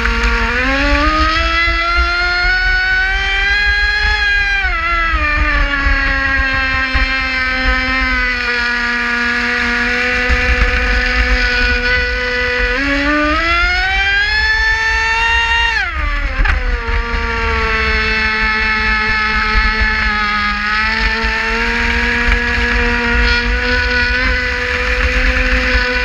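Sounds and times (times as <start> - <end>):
electric motor whining: 0.0 - 26.0.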